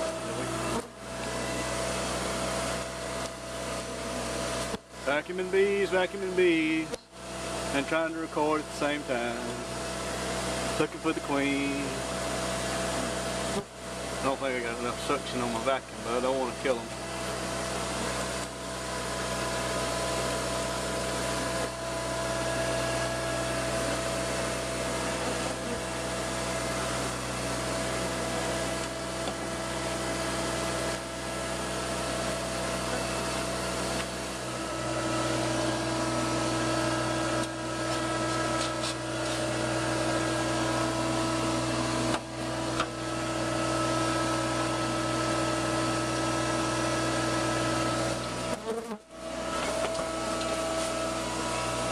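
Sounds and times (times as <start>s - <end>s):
vacuum whining steadily: 0.0s - 51.9s.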